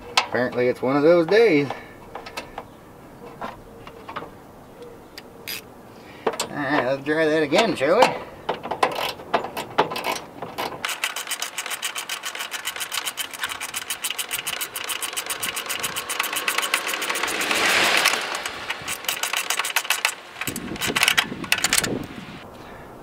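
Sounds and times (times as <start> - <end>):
hand ratchet clicking: 8.0 - 22.2.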